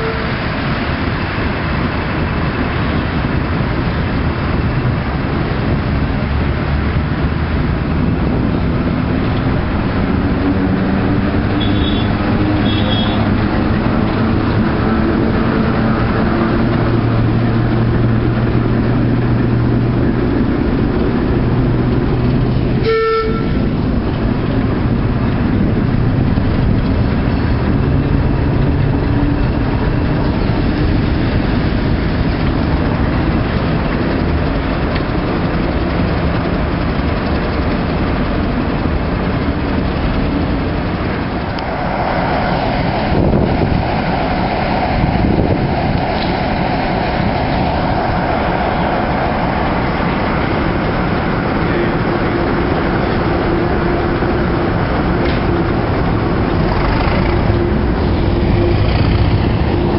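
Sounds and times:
diesel locomotive engine running: 0.0s - 59.9s
short horn toot: 11.6s - 13.3s, 22.8s - 23.6s.

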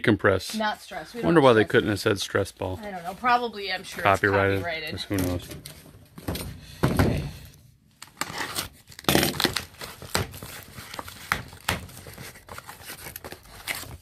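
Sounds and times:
plastic packaging crinkling: 7.9s - 14.0s.

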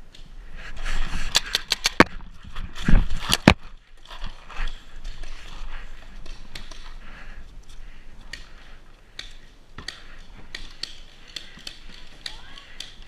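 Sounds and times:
paintball gear clicks and snaps: 1.2s - 2.2s, 3.1s - 7.0s, 8.2s - 13.0s.

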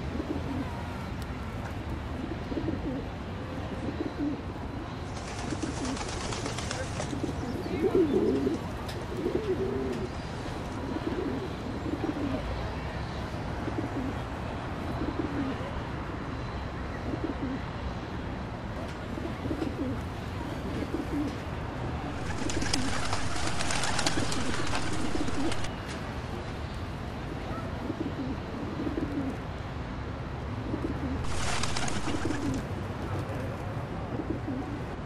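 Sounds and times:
pigeons cooing: 0.0s - 0.8s, 2.2s - 12.6s, 13.6s - 15.8s, 16.9s - 17.6s, 19.1s - 21.5s, 22.1s - 25.7s, 27.5s - 29.4s, 30.6s - 32.7s, 34.1s - 34.9s.

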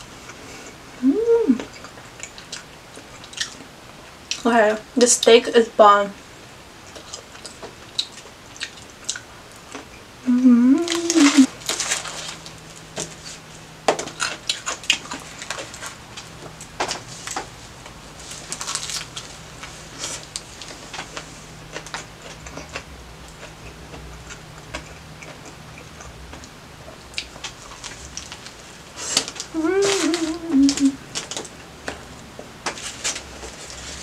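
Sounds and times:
close chewing with mouth clicks: 0.2s - 4.5s, 6.8s - 10.1s, 10.8s - 34.0s
person humming: 1.0s - 1.7s, 10.2s - 11.5s, 29.5s - 31.0s
bread crunching: 10.9s - 34.0s.

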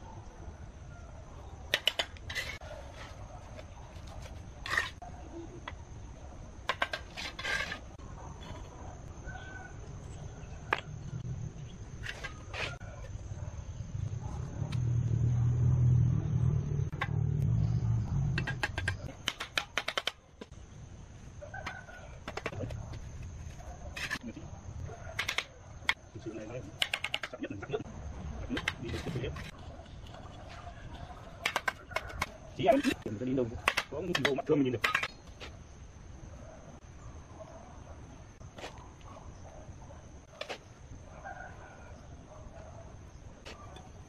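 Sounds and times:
low rumble: 13.7s - 18.4s.

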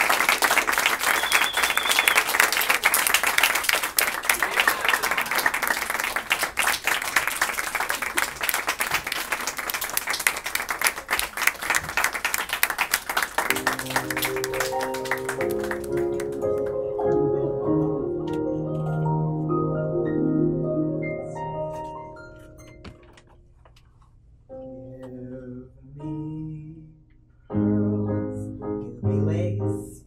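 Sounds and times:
audience applauding: 0.0s - 17.0s.

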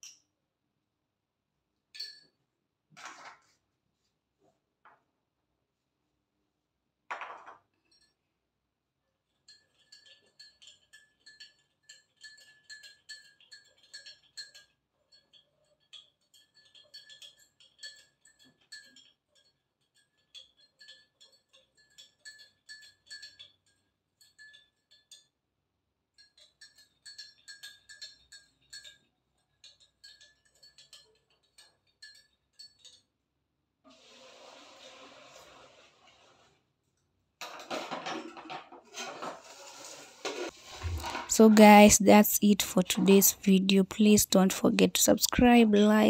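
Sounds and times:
spoon clinking in ceramic mug: 9.4s - 25.4s, 26.1s - 33.1s.

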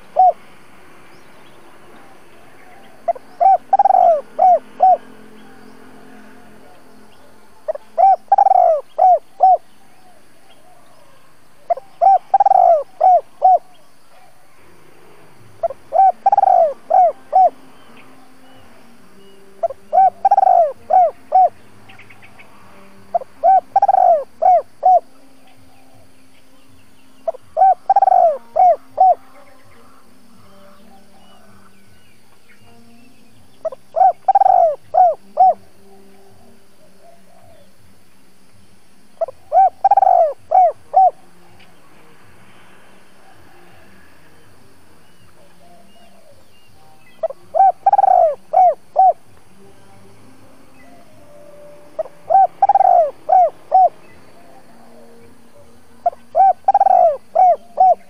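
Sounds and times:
dove cooing: 0.0s - 0.4s, 2.0s - 14.5s, 15.6s - 22.1s, 23.1s - 26.1s, 27.2s - 30.2s, 33.6s - 38.0s, 39.2s - 41.7s, 45.2s - 49.3s, 52.0s - 58.0s.

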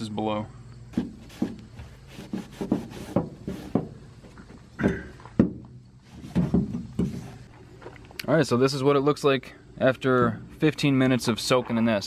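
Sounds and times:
cloth rubbing on sheet metal: 0.9s - 4.1s, 6.0s - 7.5s.

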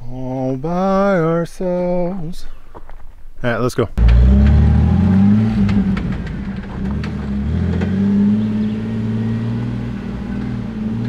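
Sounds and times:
engine running under throttle: 4.0s - 11.0s
tires and chassis knocking: 4.0s - 11.0s.

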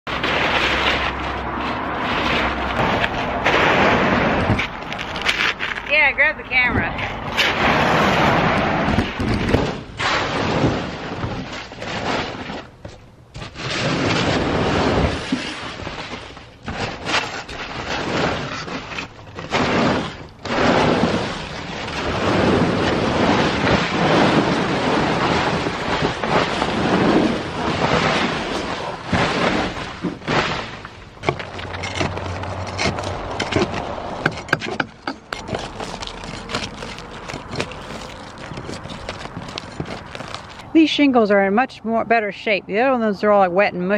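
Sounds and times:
shingle debris scraping over boards: 0.1s - 41.3s
shingle pieces clattering: 29.0s - 40.7s.

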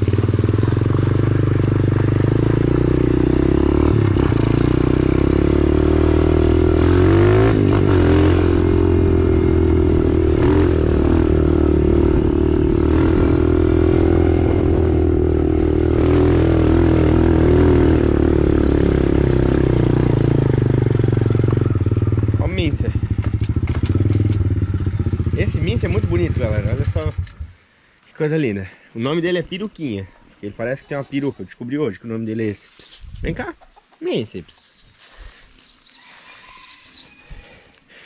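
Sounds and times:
dirt bike engine revving: 0.0s - 27.4s
rattles over bumps: 23.0s - 24.6s.

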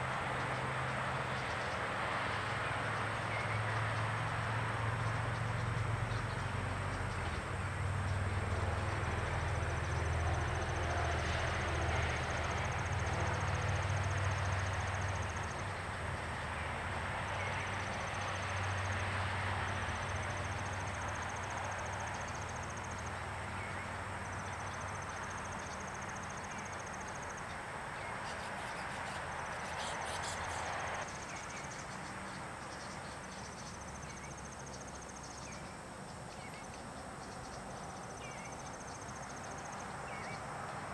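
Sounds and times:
road traffic rumble: 0.0s - 40.9s
insect trilling: 28.2s - 30.8s.

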